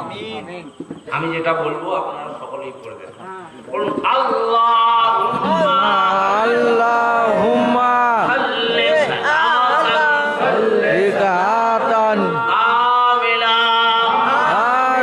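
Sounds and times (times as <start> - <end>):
man chanting: 3.7 - 15.0.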